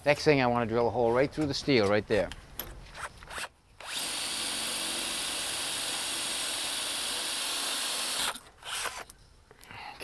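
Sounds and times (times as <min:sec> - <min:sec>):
cordless drill boring through steel: 0:03.3 - 0:09.0.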